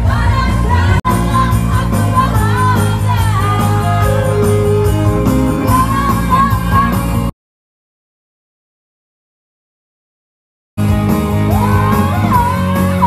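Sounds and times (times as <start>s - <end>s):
women singing along and shouting: 0.0s - 4.6s, 11.5s - 13.0s
live band music: 0.0s - 7.3s, 10.8s - 13.0s.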